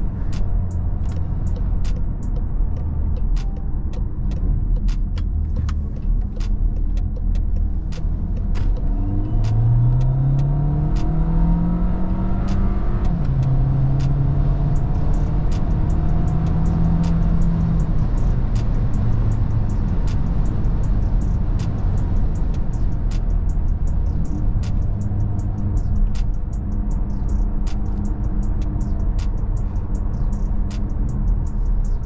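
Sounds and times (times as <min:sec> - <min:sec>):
gear shift: 0:00.0 - 0:14.2
car engine accelerating: 0:00.0 - 0:32.0.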